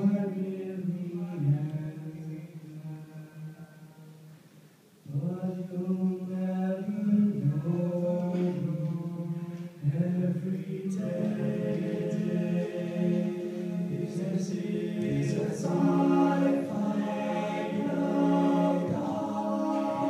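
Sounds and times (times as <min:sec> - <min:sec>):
men's a cappella harmony singing: 0:05.1 - 0:20.0.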